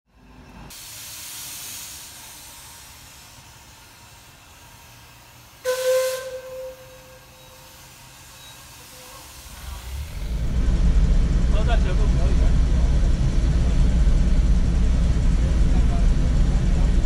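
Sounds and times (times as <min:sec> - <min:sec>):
steam locomotive hissing: 0:00.7 - 0:17.0
steam whistle blast: 0:05.6 - 0:07.8.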